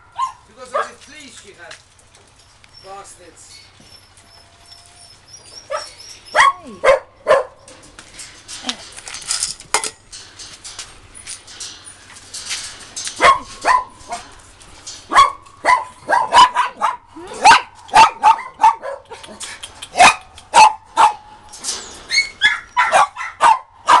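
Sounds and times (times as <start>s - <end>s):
dogs barking: 0.0s - 1.1s, 4.0s - 7.8s, 13.1s - 14.4s, 15.0s - 21.4s, 22.1s - 24.0s.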